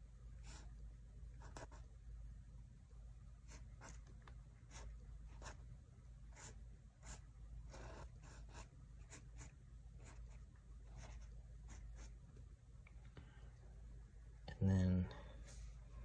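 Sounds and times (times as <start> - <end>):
pen scratching on paper: 1.4 - 1.8, 3.5 - 5.6, 6.3 - 12.1.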